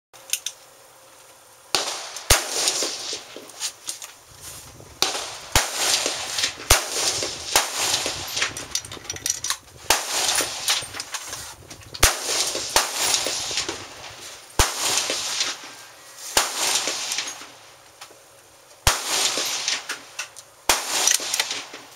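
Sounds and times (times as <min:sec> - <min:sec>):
rifle shots: 0:01.7 - 0:03.4, 0:05.0 - 0:08.9, 0:09.9 - 0:11.1, 0:12.0 - 0:17.6, 0:18.8 - 0:20.1, 0:20.7 - 0:21.9
steady rushing noise: 0:01.8 - 0:17.9.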